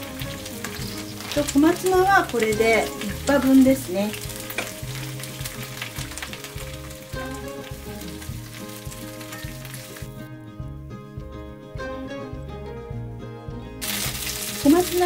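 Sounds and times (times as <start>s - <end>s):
greens sizzling in a pan: 0.0s - 10.3s, 13.8s - 15.0s
soft background piano music: 0.0s - 15.0s.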